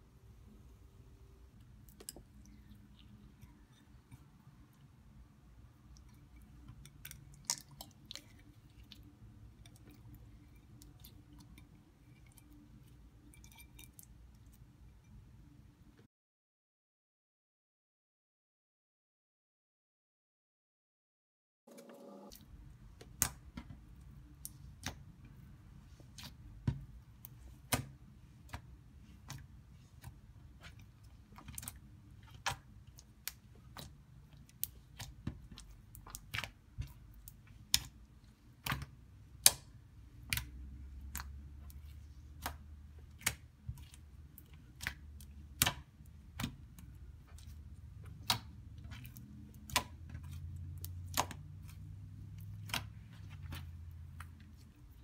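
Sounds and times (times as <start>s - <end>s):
slime squished by hand: 38.6s - 54.7s.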